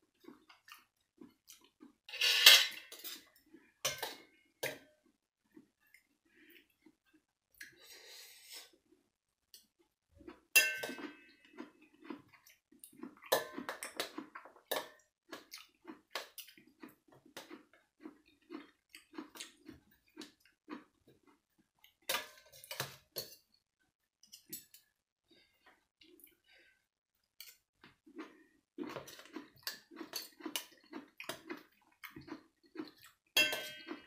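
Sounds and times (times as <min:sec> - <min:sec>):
chewing: 0:00.1 - 0:02.1, 0:09.6 - 0:23.0, 0:27.2 - 0:34.0
cutlery clinking on metal tray: 0:02.1 - 0:03.2, 0:10.6 - 0:11.3, 0:33.4 - 0:34.0.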